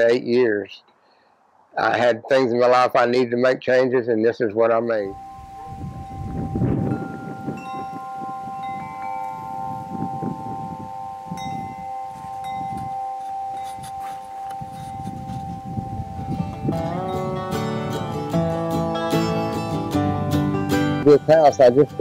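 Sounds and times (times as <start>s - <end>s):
metal wind chimes ringing: 5.1s - 19.4s.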